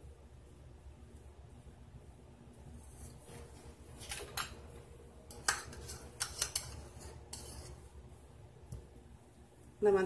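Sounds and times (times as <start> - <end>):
spoon and containers clinking: 5.3 - 7.7.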